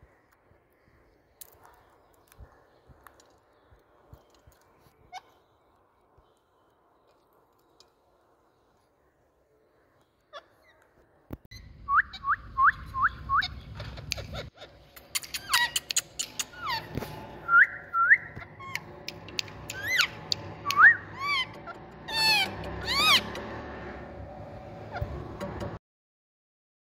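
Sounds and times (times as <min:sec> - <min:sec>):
harsh parakeet calls: 0:11.5 - 0:23.9
sharp clicks: 0:14.9 - 0:16.6, 0:18.7 - 0:20.9
parakeets whistling: 0:15.2 - 0:23.5.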